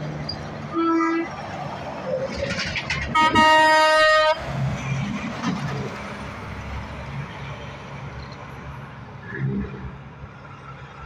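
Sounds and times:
diesel trucks passing: 0.0s - 11.0s
truck horn: 0.7s - 1.3s, 3.1s - 4.4s.

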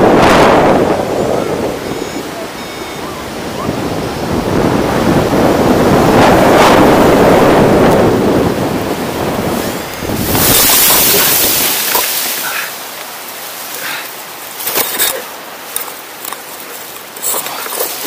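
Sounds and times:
rush of wind: 0.0s - 18.0s
leaves and branches thrashing: 8.8s - 18.0s.

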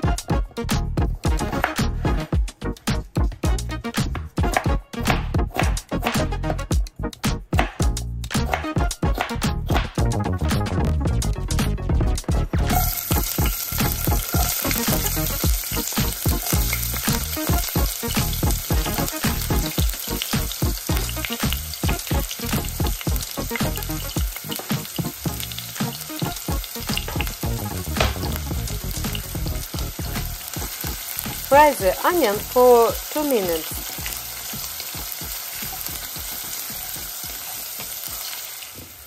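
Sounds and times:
onion sizzling in hot oil: 12.7s - 39.0s.

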